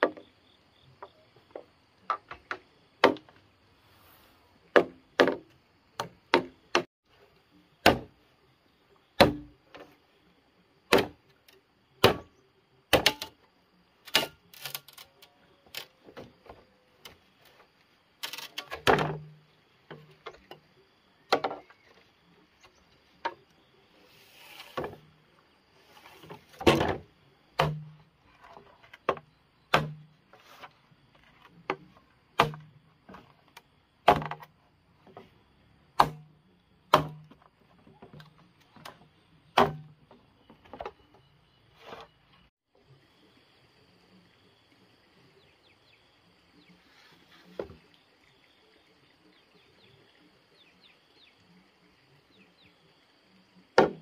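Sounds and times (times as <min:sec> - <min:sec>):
hand tool chopping thuds: 0:04.7 - 0:06.9, 0:07.8 - 0:08.2, 0:09.2 - 0:09.6, 0:10.9 - 0:11.2, 0:12.0 - 0:12.3, 0:12.9 - 0:13.3, 0:26.2 - 0:28.0, 0:29.1 - 0:30.1, 0:31.5 - 0:33.3, 0:34.0 - 0:34.5, 0:36.0 - 0:36.3, 0:36.9 - 0:39.0, 0:39.6 - 0:40.1, 0:53.8 - 0:54.0.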